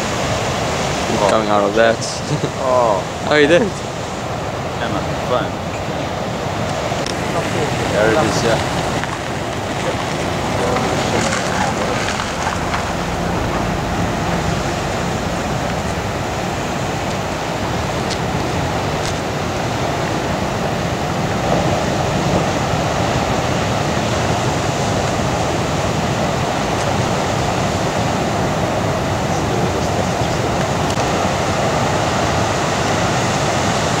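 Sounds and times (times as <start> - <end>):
ocean waves breaking: 0.0 - 34.0.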